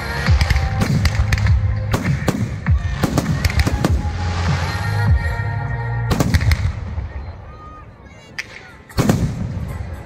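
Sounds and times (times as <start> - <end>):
fireworks bursting: 0.0 - 7.2
music playing: 0.0 - 10.0.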